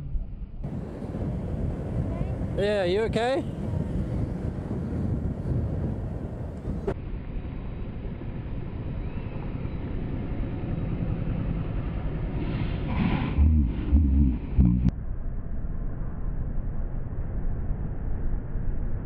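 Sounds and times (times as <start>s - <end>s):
motor scooter riding rumble: 0.6s - 14.9s.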